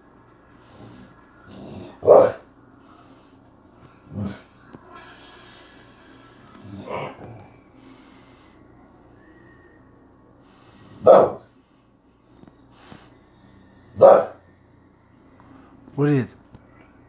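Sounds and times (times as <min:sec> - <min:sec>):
large dog woofing: 0:00.8 - 0:02.5, 0:03.9 - 0:04.6, 0:06.6 - 0:07.6, 0:11.0 - 0:11.5, 0:13.9 - 0:14.5.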